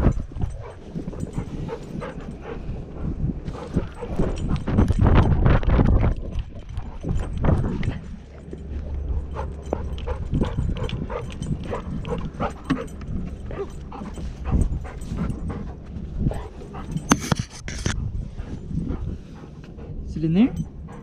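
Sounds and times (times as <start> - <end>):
dog panting: 0.0 - 5.4, 6.2 - 21.0.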